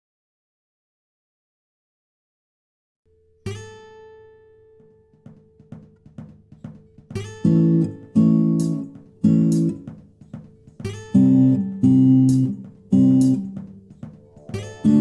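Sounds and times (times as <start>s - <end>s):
strummed guitar chords: 4.6s - 15.0s.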